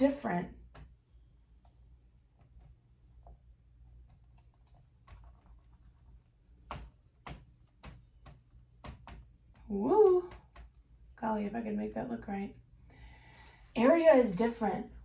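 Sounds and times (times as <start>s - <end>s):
marker writing on whiteboard: 4.4s - 9.6s
marker tapping on whiteboard: 6.6s - 9.7s, 10.3s - 10.8s.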